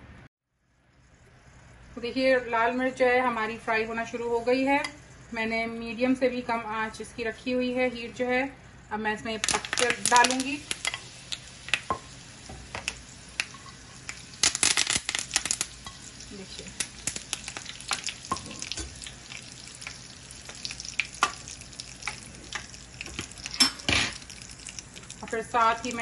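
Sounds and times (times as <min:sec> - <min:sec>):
leaves and chillies sizzling in oil: 0:01.9 - 0:26.0.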